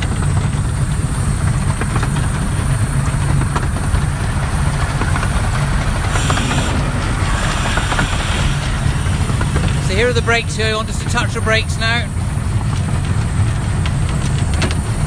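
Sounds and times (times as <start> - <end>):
steel wheels rumbling on rails: 0.0 - 15.0
steam hiss: 4.0 - 12.0.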